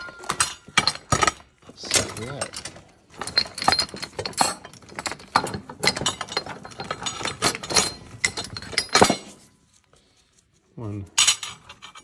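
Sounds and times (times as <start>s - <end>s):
metal parts clinking and knocking: 0.0s - 9.8s, 11.0s - 12.0s.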